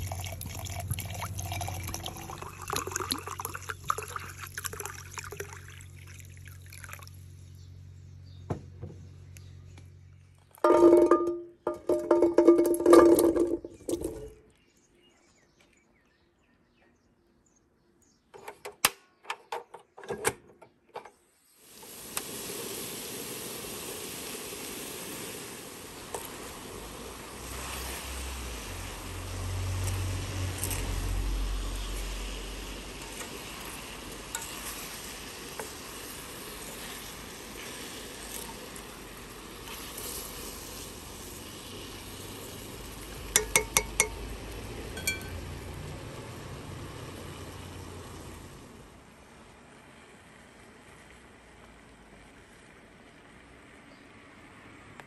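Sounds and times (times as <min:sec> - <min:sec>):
clicks and knocks: 0:10.6 - 0:14.4
gas burner hissing: 0:21.4 - 0:48.6
light metallic clinks: 0:45.0 - 0:45.4.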